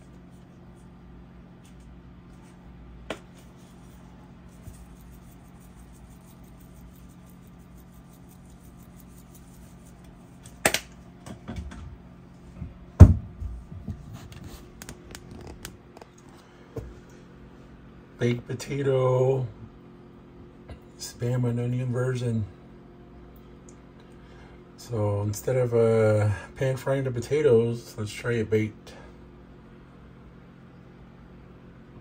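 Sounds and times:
low appliance hum: 0.0 - 32.0
sharp snap: 10.5 - 11.0
knock on the counter: 13.0 - 13.5.

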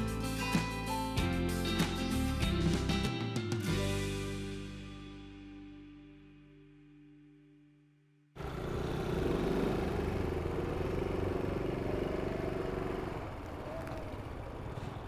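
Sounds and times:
small motorcycle engine running: 8.4 - 15.0.

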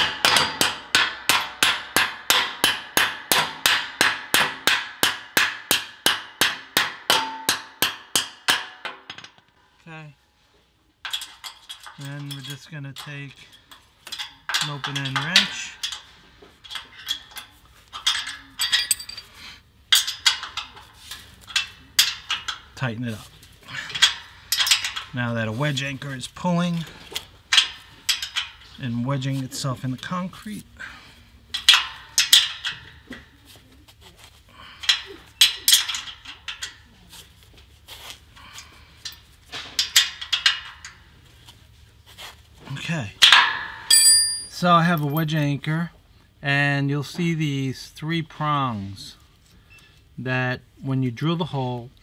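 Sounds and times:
wrench clinking on metal nut: 16.6 - 19.3, 43.2 - 45.3.

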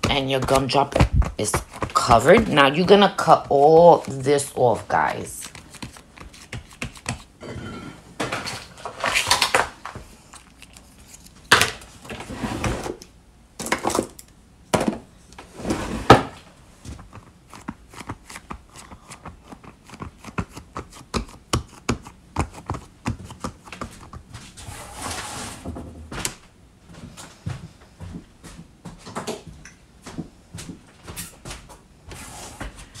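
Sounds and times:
hands rubbing foam clay: 0.0 - 7.3, 17.0 - 24.3.

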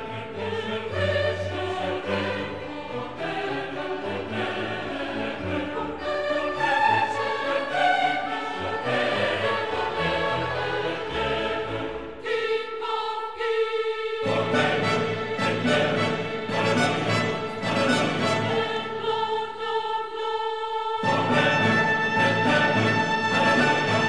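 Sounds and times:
choir singing held notes: 0.0 - 24.0
instrumental accompaniment: 14.3 - 19.2, 21.0 - 24.0.

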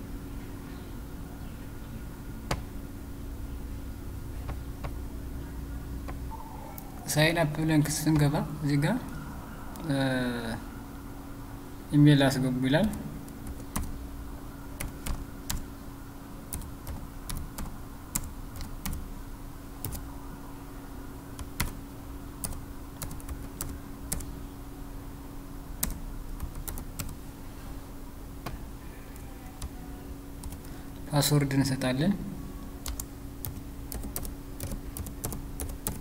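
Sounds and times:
steady low hum: 0.0 - 36.0
computer keyboard typing: 12.8 - 14.0, 14.8 - 15.7, 16.5 - 19.1, 19.8 - 20.1, 21.3 - 21.8, 22.4 - 24.3, 25.8 - 27.2, 29.2 - 29.8, 30.4 - 30.7, 32.8 - 36.0.

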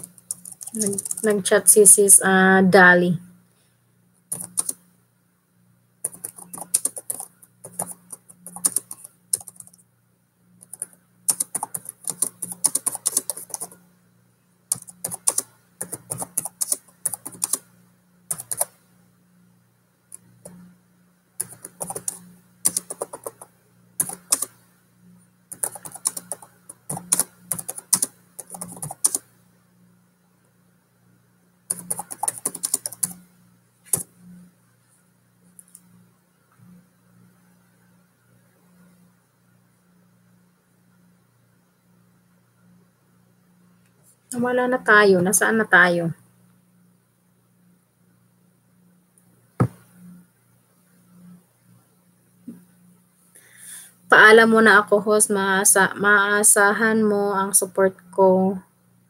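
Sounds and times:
computer keyboard typing: 0.0 - 1.4, 4.3 - 4.8, 6.0 - 9.8, 10.6 - 13.8, 14.7 - 17.7, 18.3 - 18.8, 21.4 - 24.6, 25.5 - 29.3, 31.7 - 33.3.

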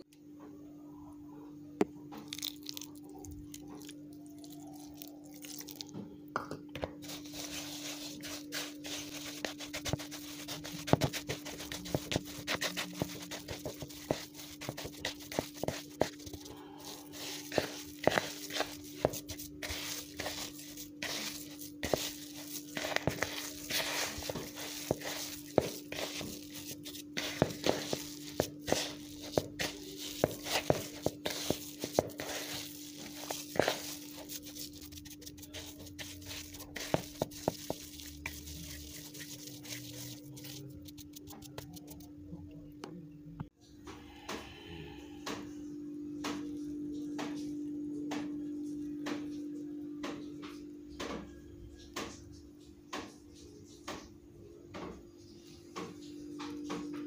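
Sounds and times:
hands rubbing gritty mixture: 7.0 - 42.1.

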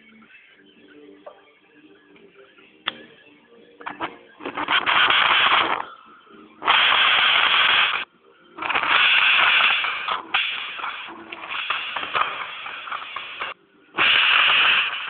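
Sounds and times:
torch flame hissing: 4.5 - 6.0, 6.6 - 8.0, 8.6 - 15.0.

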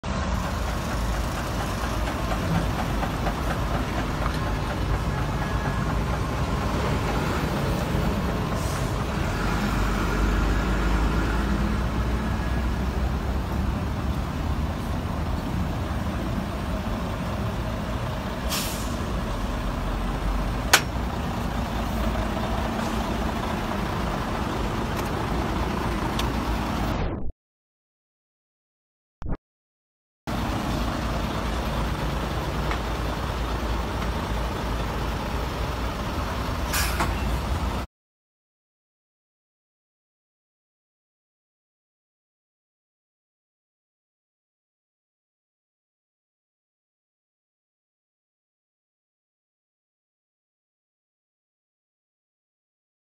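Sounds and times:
diesel truck engines running: 0.0 - 27.0, 30.3 - 37.9
air brake hiss: 8.5 - 9.0, 18.4 - 19.1, 36.6 - 37.2.

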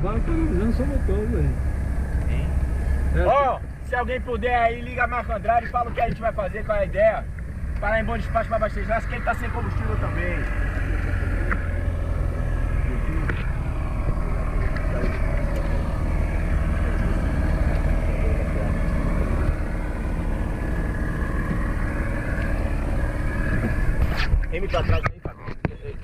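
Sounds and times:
outboard motor running: 5.4 - 25.6.

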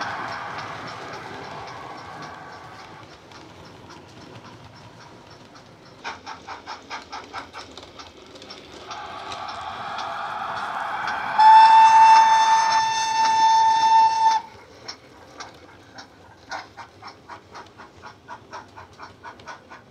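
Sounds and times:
high steady whistle: 0.0 - 3.0, 8.9 - 14.6
rising hiss: 0.0 - 3.2, 8.8 - 14.6
model steam locomotive chuffing: 0.0 - 19.9.

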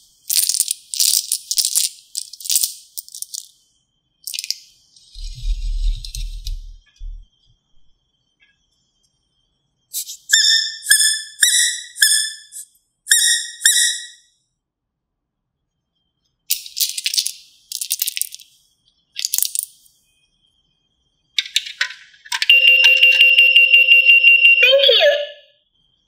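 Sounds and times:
plastic toy coins rattling: 0.1 - 3.6, 4.2 - 4.6, 16.5 - 18.6, 19.2 - 19.8, 21.4 - 23.2
rubber duck squeaking: 10.0 - 14.2.

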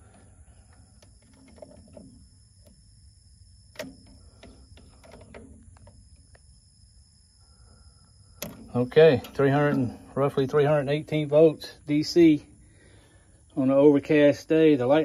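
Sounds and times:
test probes clicking on metal: 8.3 - 9.8.

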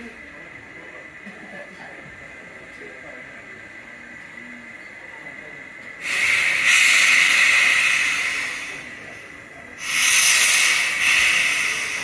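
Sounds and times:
steam locomotive hissing: 5.8 - 12.0.

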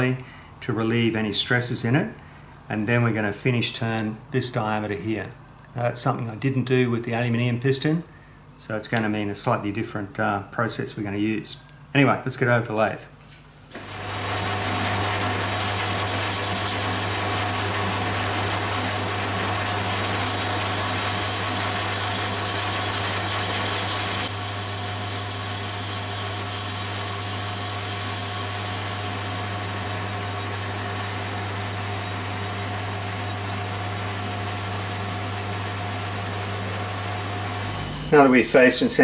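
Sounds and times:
metal lathe humming: 13.8 - 39.0.

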